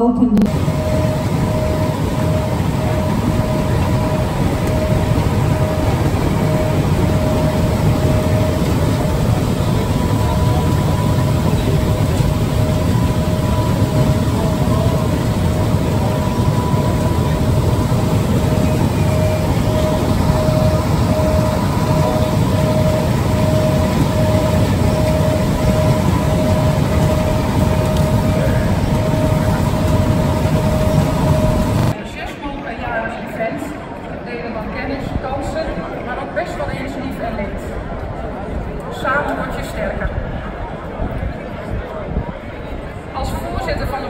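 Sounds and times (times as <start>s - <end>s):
steady tone: 0.0s - 32.0s
machinery and conveyor belts rumbling: 0.0s - 44.0s.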